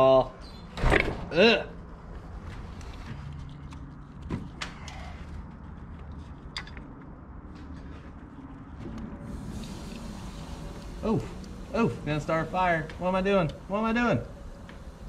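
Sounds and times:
low steady hum: 4.9 - 15.0.

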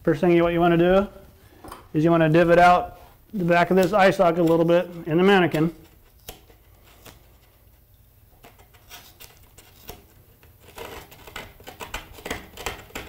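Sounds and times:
metal tool scraping foam: 8.5 - 13.0.

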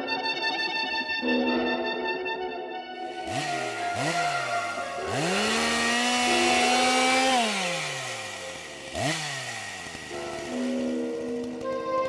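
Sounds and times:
chainsaw revving: 3.0 - 12.0.

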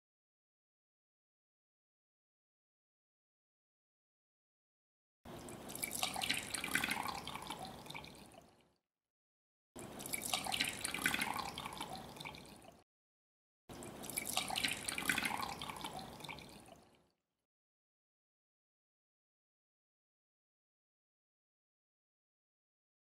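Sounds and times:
liquid pouring into glass cups: 5.3 - 8.7, 9.8 - 12.8, 13.7 - 17.1.

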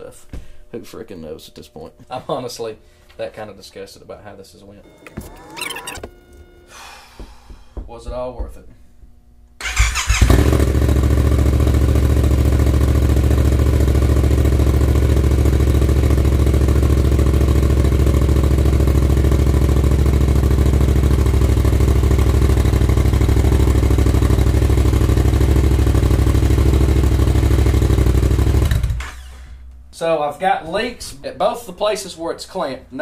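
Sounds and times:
motorcycle engine idling: 9.7 - 28.7.

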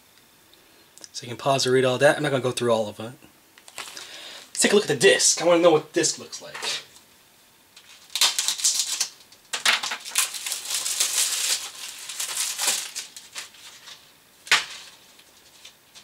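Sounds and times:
plastic packaging crinkling: 3.6 - 4.1, 7.8 - 16.0.

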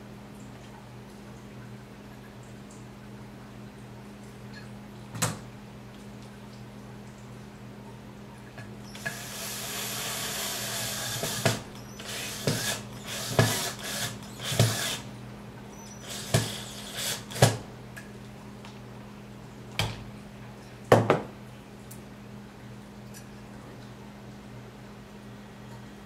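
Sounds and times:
cordless drill driving screws: 8.9 - 15.1, 15.8 - 17.6.

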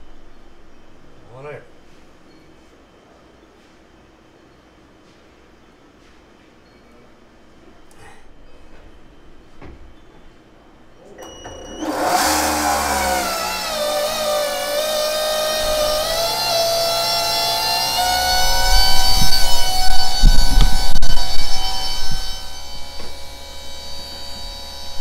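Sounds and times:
fuel pump whine: 10.8 - 25.0
low thumps: 13.0 - 23.4.

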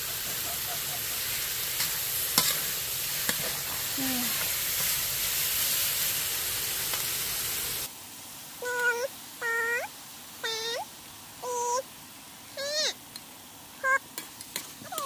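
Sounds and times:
oil sizzling in a pan: 0.0 - 15.0
cat meowing: 8.6 - 11.8, 12.6 - 13.0, 13.8 - 14.0.

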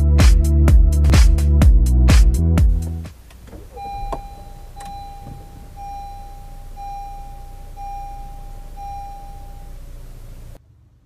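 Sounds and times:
low steady rumble: 1.6 - 11.0
seat belt reminder chime beeping: 3.6 - 10.1.

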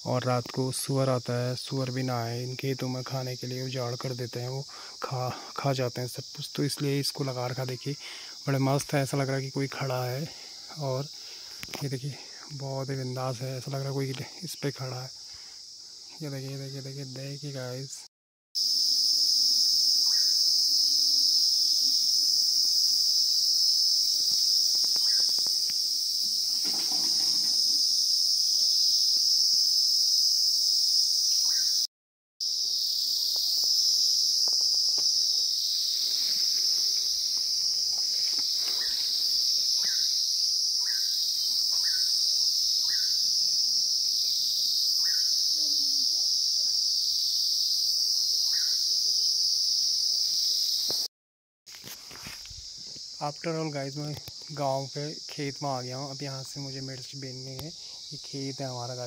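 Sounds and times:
insects droning: 0.0 - 51.1, 51.7 - 59.0
bird chirps: 20.0 - 20.4, 24.9 - 25.4.

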